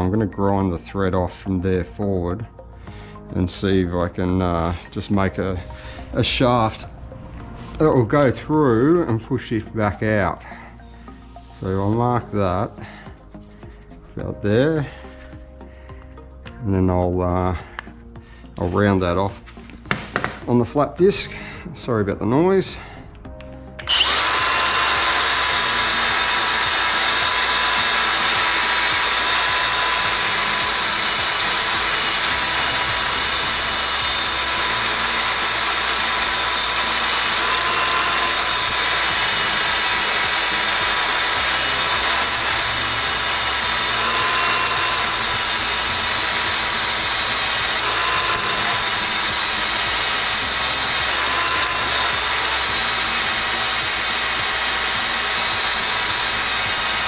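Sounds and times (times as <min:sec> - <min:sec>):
angle grinder motor whine: 0:23.4 - 0:57.0.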